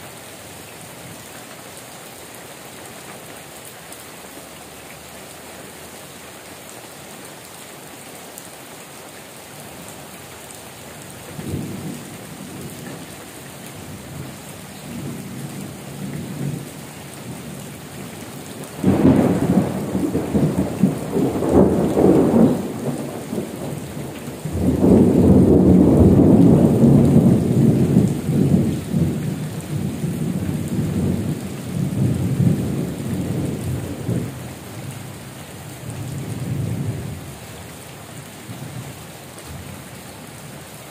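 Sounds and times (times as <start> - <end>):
heavy rain falling: 0.0 - 40.9
rolling thunder: 18.8 - 34.4.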